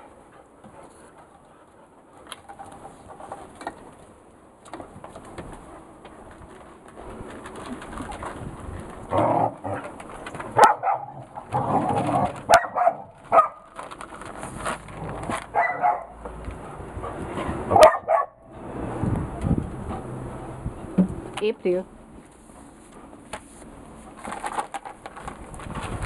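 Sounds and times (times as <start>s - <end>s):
puppy eating from plastic tray: 2.2s - 16.8s, 23.7s - 26.0s.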